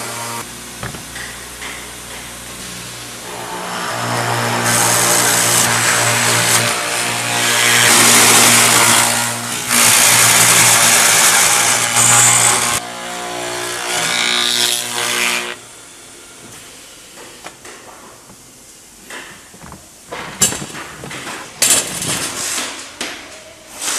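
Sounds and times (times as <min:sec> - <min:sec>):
loud machining noise: 0:01.1 - 0:16.1.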